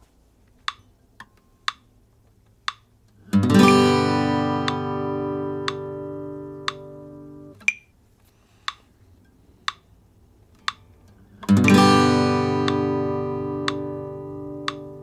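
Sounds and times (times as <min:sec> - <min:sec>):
metronome ticking: 0:00.6 - 0:08.0, 0:08.7 - 0:15.0
acoustic guitar chord strum: 0:03.2 - 0:07.7, 0:11.3 - 0:15.0.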